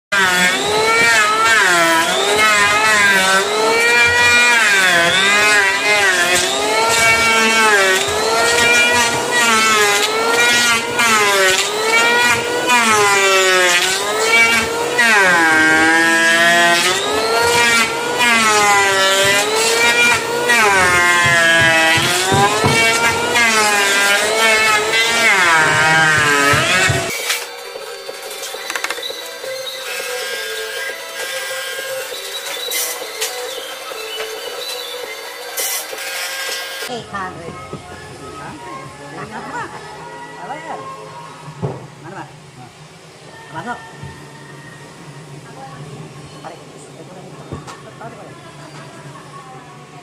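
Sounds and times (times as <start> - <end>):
electric hand planer shaving wood: 0.1 - 36.9.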